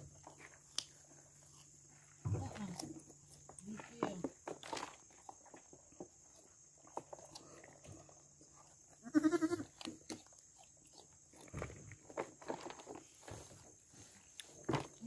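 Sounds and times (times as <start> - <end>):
goat bleating: 9.0 - 9.8.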